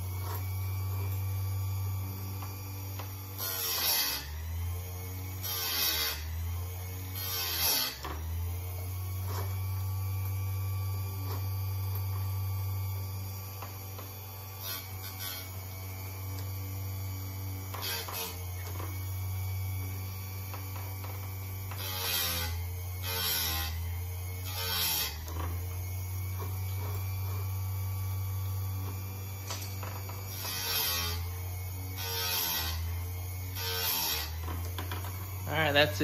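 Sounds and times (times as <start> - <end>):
grinding wheel rasping on chain: 20.5 - 23.8, 28.8 - 36.0.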